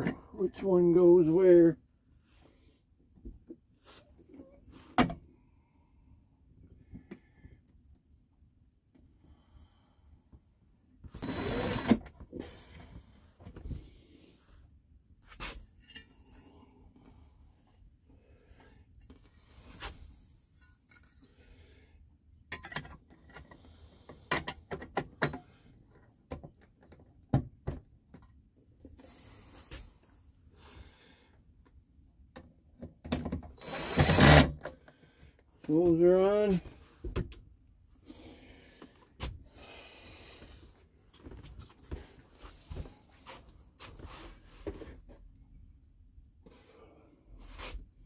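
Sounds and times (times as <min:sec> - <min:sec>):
cordless drill whirring: 0:11.2 - 0:12.0, 0:33.6 - 0:34.6.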